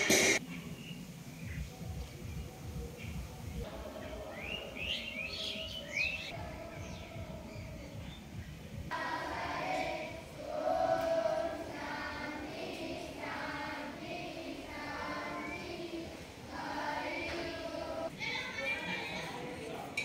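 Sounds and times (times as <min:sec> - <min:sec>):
children singing: 0:03.6 - 0:07.9, 0:08.9 - 0:18.1.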